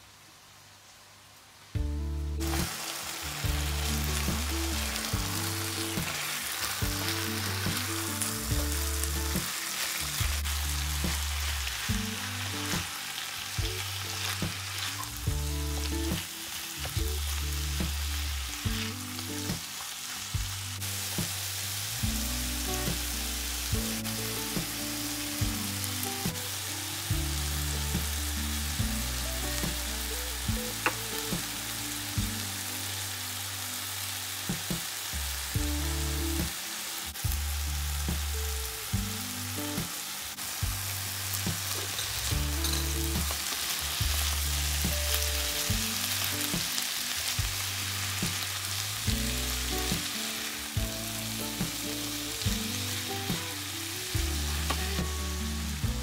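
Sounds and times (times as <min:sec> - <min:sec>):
chicken and mushrooms sizzling: 0:00.0 - 0:56.0.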